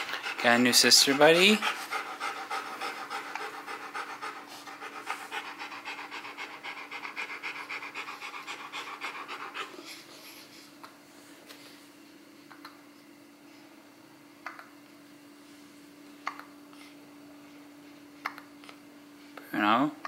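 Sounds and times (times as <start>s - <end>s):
dog panting: 0.0s - 10.6s.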